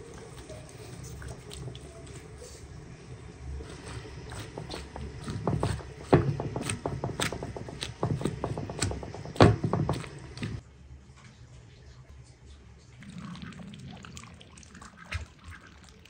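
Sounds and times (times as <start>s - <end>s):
vegetables shuffling in pan: 3.6s - 10.6s
loud knocks: 4.4s - 10.6s
wooden spoon clacking against pan: 4.4s - 10.6s.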